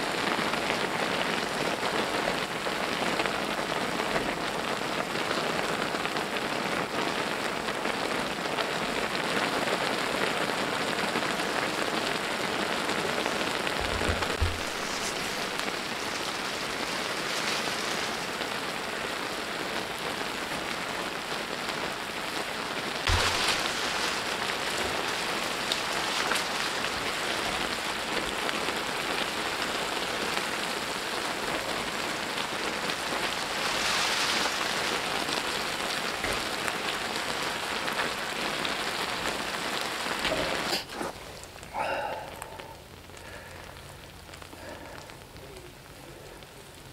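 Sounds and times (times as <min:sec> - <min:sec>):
noodles sizzling in pan: 0:00.0 - 0:41.7
brief knocks: 0:13.8 - 0:15.3.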